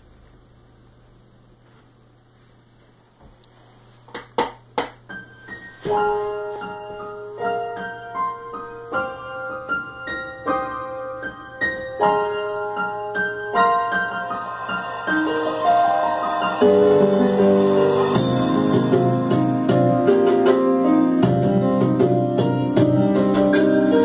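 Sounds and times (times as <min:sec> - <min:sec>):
piano music through speakers: 0:05.0 - 0:24.0
sharp strikes: 0:13.7 - 0:20.8.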